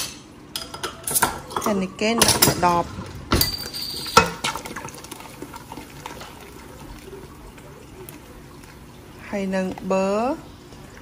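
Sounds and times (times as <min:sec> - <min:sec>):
beer pouring into batter: 0:03.0 - 0:11.0.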